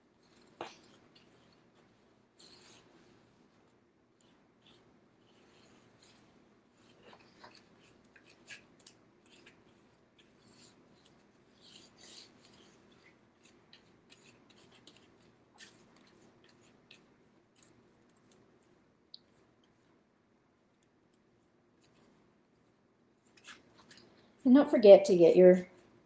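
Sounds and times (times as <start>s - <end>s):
paintbrush strokes on paper plate: 0.1s - 20.0s.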